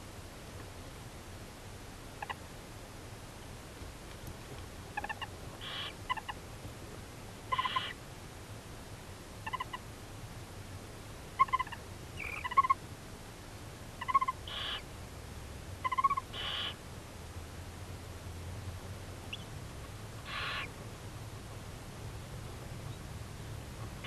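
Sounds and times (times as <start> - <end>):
owls chirping twitters: 2.2 - 2.4, 4.9 - 6.4, 7.5 - 8.0, 9.4 - 9.8, 11.4 - 12.8, 14.0 - 14.9, 15.8 - 16.8, 19.3 - 19.5, 20.2 - 20.7
breathy owl bursts: 5.6 - 6.0, 7.5 - 8.0, 14.5 - 14.8, 16.3 - 16.8, 20.2 - 20.7.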